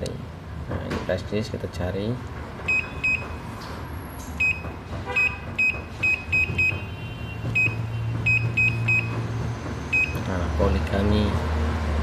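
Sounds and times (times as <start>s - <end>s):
short high key-press beeps: 5.2s - 6.8s.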